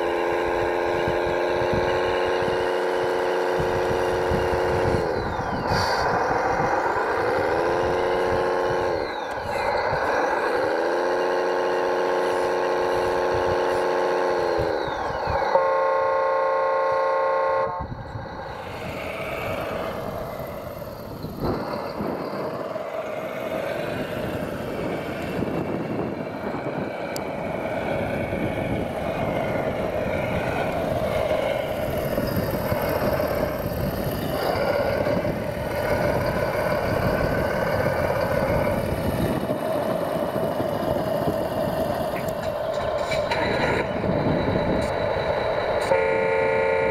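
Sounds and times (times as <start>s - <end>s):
simulated diesel engine running: 0.0s - 46.9s
horn blasts: 15.5s - 18.0s, 45.8s - 46.9s.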